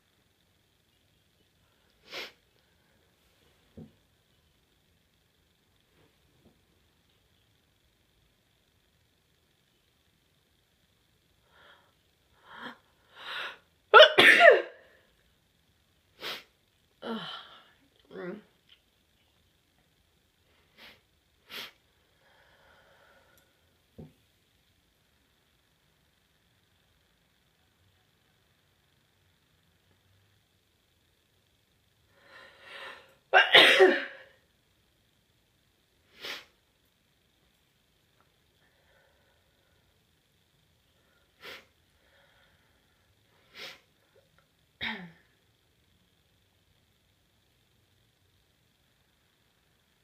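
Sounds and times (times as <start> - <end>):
person breathing: 11.4 - 13.7, 20.5 - 23.7, 32.1 - 33.2, 38.6 - 40.0, 41.0 - 43.9
person sneezing: 14.0 - 14.8, 33.4 - 34.3.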